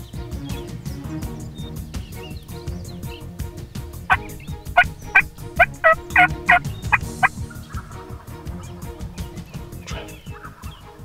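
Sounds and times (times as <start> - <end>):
wild turkey yelping: 4.1 - 8.0.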